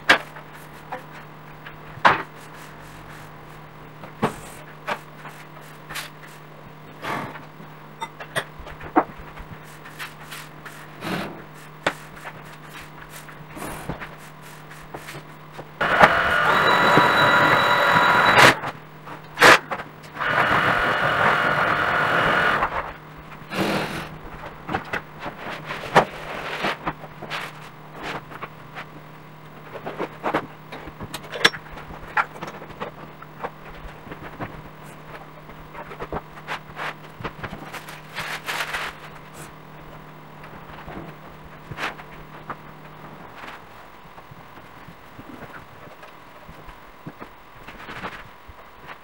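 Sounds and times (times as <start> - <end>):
loud scraping noise: 15.8 - 18.6.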